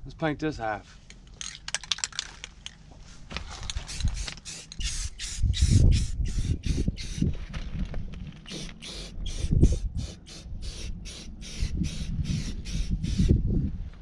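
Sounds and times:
spray paint can hissing: 3.6 - 7.3, 8.5 - 13.4
wind rumble on microphone: 3.6 - 14.0.

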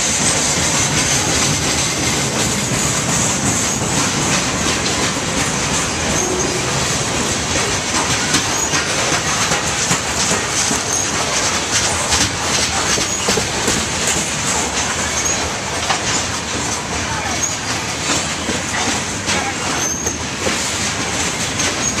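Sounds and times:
clatter over rail joints: 0.0 - 22.0
train wheels rumbling on rail: 0.0 - 22.0
high-pitched wheel squeals: 5.9 - 6.7.

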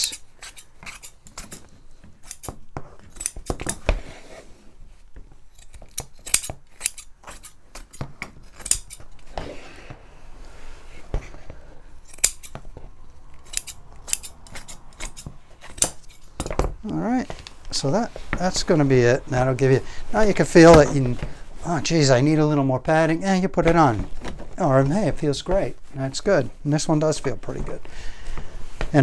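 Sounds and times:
scissors snipping cloth: 13.4 - 16.2.

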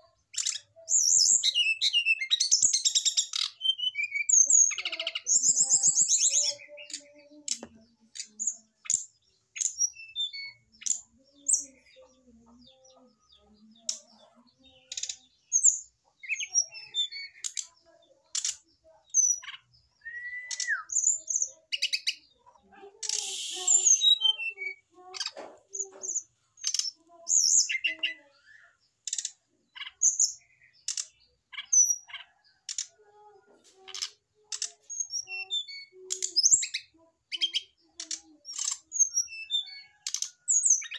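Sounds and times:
bird chirps and clicks: 0.3 - 40.9
bird slurred whistle: 20.0 - 20.9, 23.1 - 24.2
harsh rasping bird call: 23.0 - 24.4.

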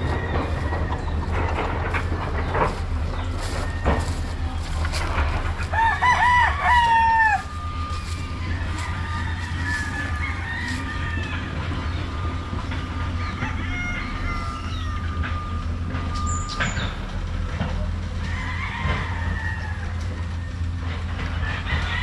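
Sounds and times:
steady low rumble: 0.0 - 16.3
roosters crowing: 0.0 - 22.0.

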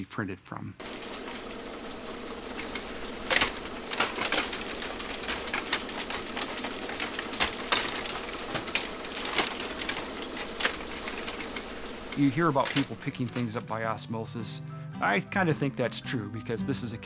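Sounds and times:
steady machine hum: 0.8 - 13.4
machine clicks and clacks: 0.8 - 13.6.

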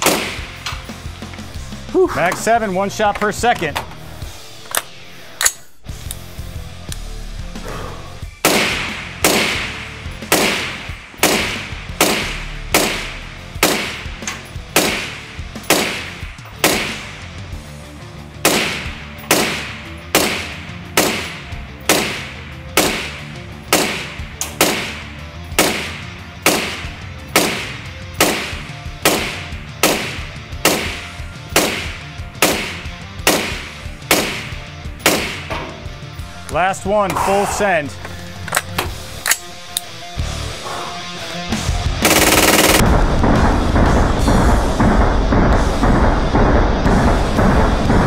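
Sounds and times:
suppressed rifle shots: 0.0 - 0.7, 8.4 - 17.2, 18.4 - 35.5, 42.0 - 43.9
background music: 0.0 - 48.0.

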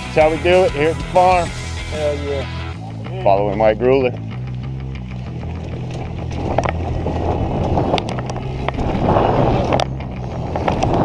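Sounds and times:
bike tyres rolling on dirt: 4.4 - 11.0
bike knocks and rattles: 5.4 - 11.0.

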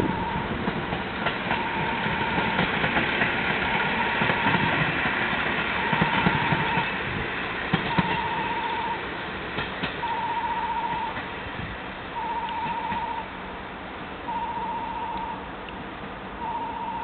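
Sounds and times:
high beeping tone: 0.0 - 0.5, 7.9 - 9.0, 10.0 - 11.2, 12.2 - 13.3, 14.3 - 15.4, 16.4 - 17.0
diesel railcar engine running: 0.0 - 17.0.

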